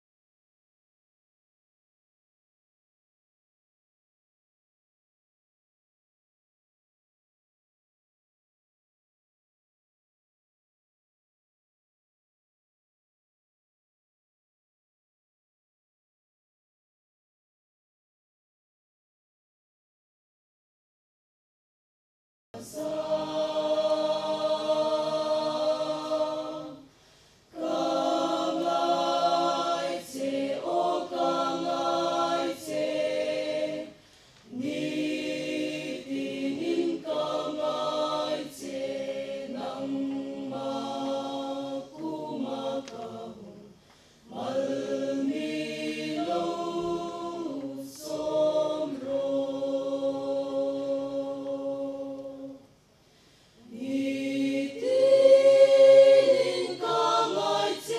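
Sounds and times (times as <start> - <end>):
mixed choir singing unaccompanied: 22.6 - 26.9, 27.5 - 52.7, 53.6 - 57.9.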